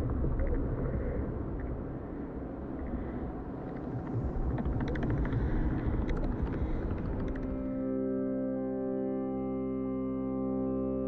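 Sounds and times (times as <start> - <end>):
low steady rumble: 0.0 - 7.8.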